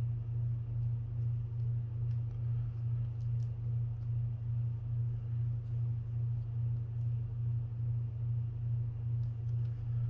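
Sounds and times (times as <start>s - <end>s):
steady low hum: 0.0s - 10.0s
faint light clicks: 0.7s - 4.2s, 9.1s - 10.0s.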